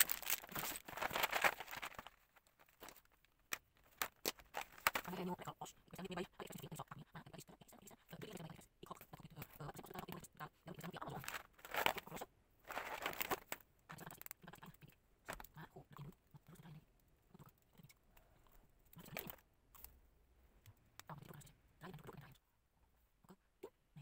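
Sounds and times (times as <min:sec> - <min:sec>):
packaging rustling: 0:00.0 - 0:05.3, 0:11.0 - 0:14.3.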